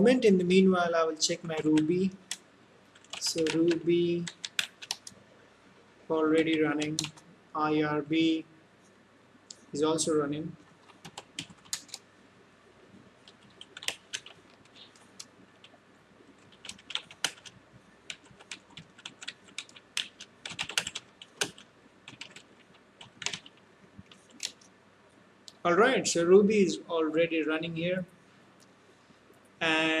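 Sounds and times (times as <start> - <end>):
keyboard typing clicks: 3.0 - 5.2, 6.4 - 7.2, 10.8 - 12.0, 13.2 - 15.8, 16.4 - 24.6.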